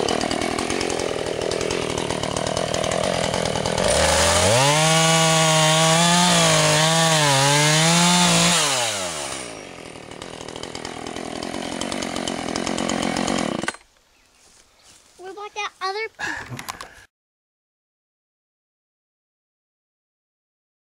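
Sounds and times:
chainsaw cutting log: 0.0 - 14.0.

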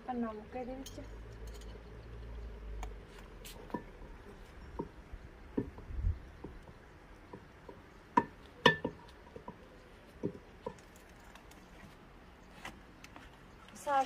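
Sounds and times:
wood knocking against metal pot: 4.8 - 9.6.

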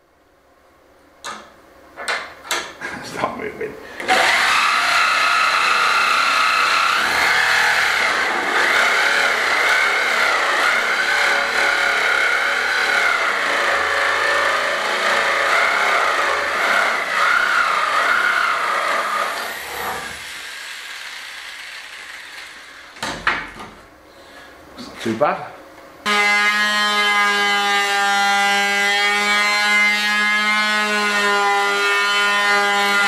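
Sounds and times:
jigsaw cutting wood: 4.0 - 23.0.

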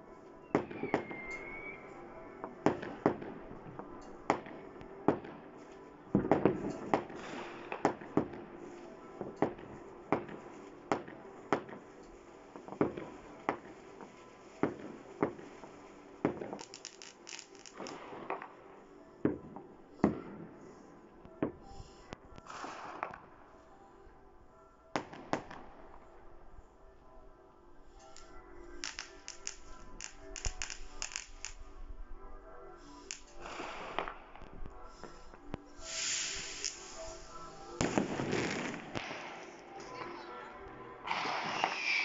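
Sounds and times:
fireworks and firecrackers banging: 0.4 - 23.6, 24.9 - 26.1, 28.0 - 31.7, 32.9 - 42.0
firework crackling: 6.3 - 18.4, 28.1 - 31.7, 32.9 - 34.2, 34.9 - 40.3, 41.0 - 42.0.

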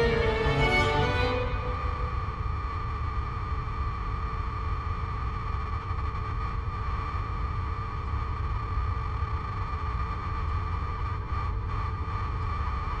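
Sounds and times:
electronic drone low rumble: 0.0 - 3.2.

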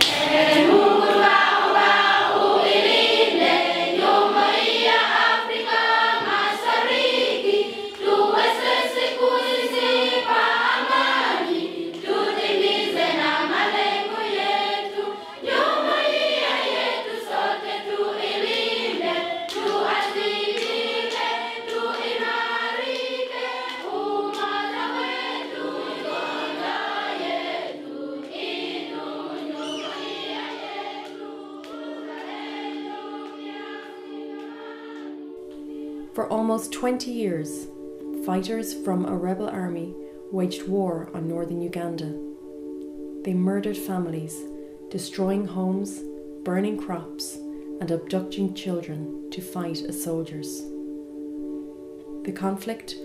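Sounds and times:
children's choir singing: 0.0 - 37.6.

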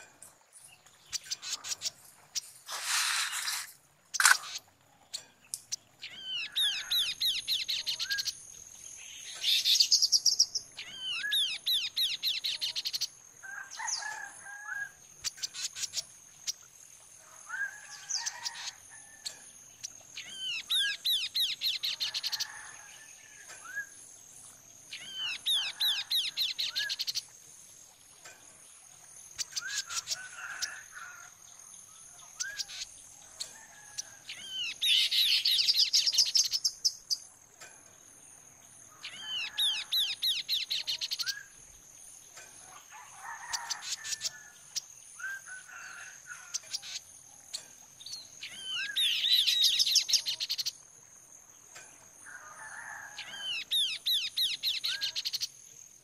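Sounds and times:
lower bird chirps: 0.0 - 16.7, 32.2 - 37.7, 38.8 - 42.6, 46.4 - 50.8, 53.2 - 55.5.

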